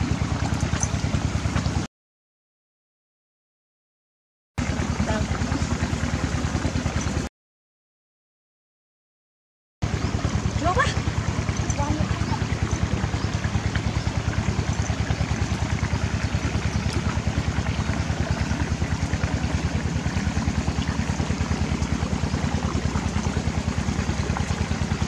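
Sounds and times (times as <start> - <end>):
engine running steadily: 0.0 - 1.9, 4.6 - 7.3, 9.8 - 25.0.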